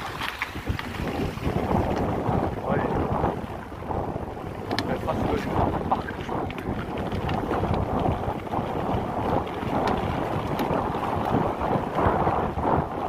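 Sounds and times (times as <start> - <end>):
wind on microphone: 0.0 - 13.0.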